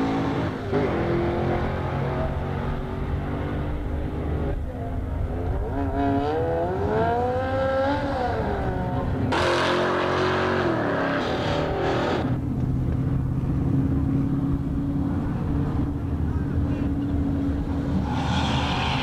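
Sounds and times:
drag car accelerating: 0.0 - 19.0
loud engine rev: 5.5 - 12.4.

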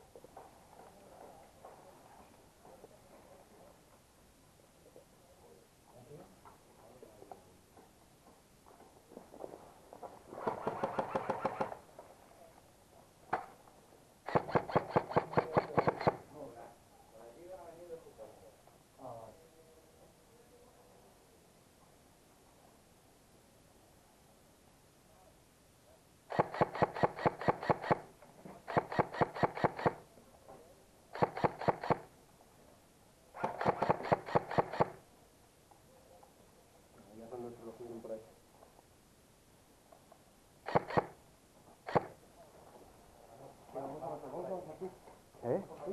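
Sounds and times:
airsoft rifle fire: 10.4 - 11.8, 14.3 - 16.2, 26.3 - 28.1, 28.7 - 30.0, 31.2 - 32.1, 33.4 - 35.0, 40.6 - 41.2.

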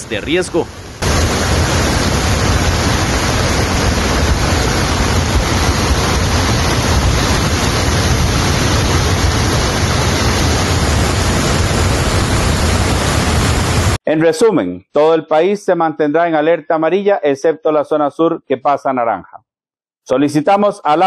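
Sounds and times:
flood water rushing torrent: 0.0 - 14.0.

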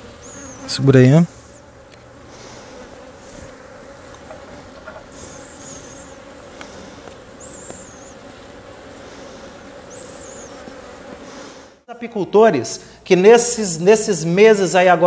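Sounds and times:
honeybees buzzing: 0.0 - 11.9.

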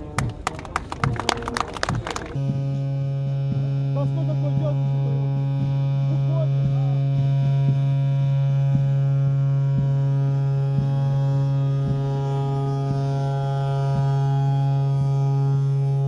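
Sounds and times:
faint voices: 0.0 - 2.4
loud steady low hum: 0.0 - 16.0.

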